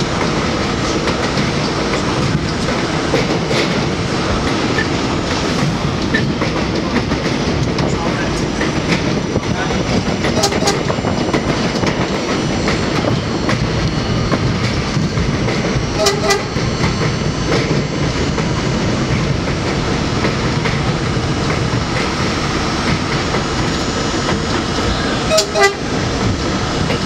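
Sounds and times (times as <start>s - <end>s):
train rumbling over rail joints: 0.0s - 27.0s
train horn toots: 10.3s - 11.1s, 15.9s - 16.7s, 24.9s - 26.0s.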